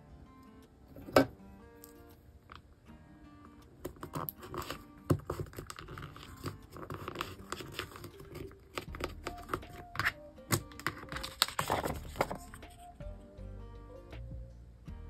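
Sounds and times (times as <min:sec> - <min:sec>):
paper rustling and crinkling: 0:03.9 - 0:12.9.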